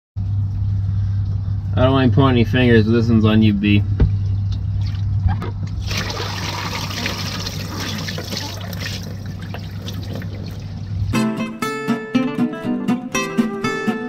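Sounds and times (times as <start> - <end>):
steady low hum: 0.2 - 11.3
water splashing and trickling: 4.6 - 11.1.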